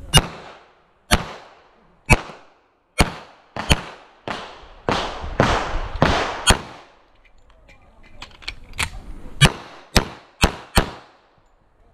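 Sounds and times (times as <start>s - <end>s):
pistol shots echoing: 0.1s - 7.0s, 9.4s - 11.3s.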